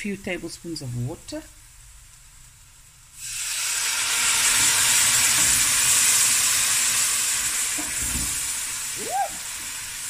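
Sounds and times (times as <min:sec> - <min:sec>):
loud sizzle and steam hiss: 0:00.0 - 0:10.0
water poured into hot oil: 0:03.1 - 0:10.0.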